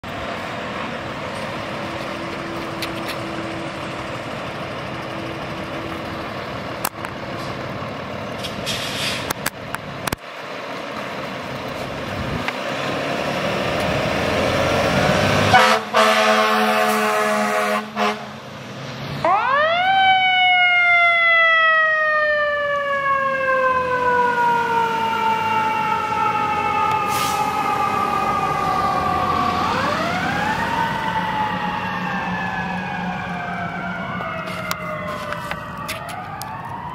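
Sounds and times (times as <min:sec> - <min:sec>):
fire engines running: 0:00.0 - 0:36.9
loud air horn blast: 0:15.4 - 0:18.4
siren winding up and down: 0:19.2 - 0:36.9.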